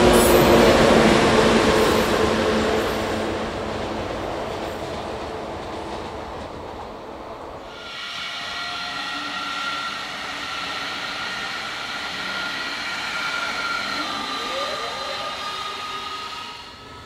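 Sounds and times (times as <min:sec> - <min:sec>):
train rumble: 0:00.0 - 0:17.0
electric train drive whining: 0:07.6 - 0:17.0.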